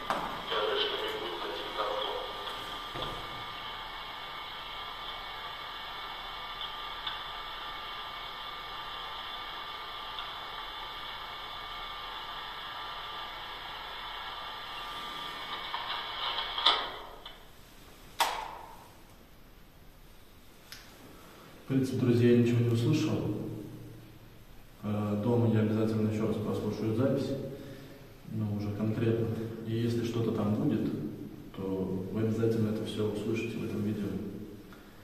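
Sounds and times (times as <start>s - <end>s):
steady playback hiss: 0.0s - 35.0s.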